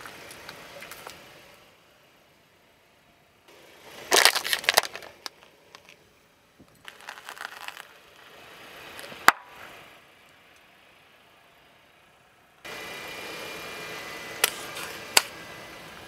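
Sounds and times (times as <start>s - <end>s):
plastic packaging cracking and crunching: 4.1s - 5.4s, 6.9s - 7.9s.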